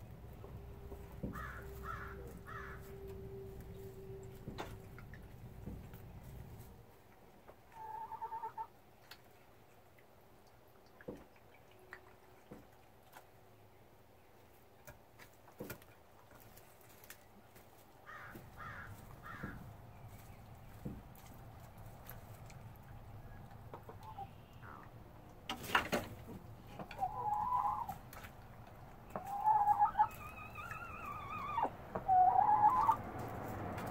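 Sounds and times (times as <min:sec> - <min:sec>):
hens calling softly: 0:00.3 - 0:09.2, 0:17.7 - 0:20.6, 0:21.2 - 0:25.2, 0:26.4 - 0:33.4.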